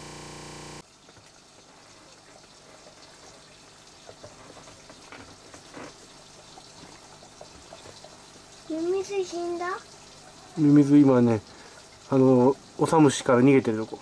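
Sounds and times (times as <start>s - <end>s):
buzzing hum: 0.0s - 0.8s.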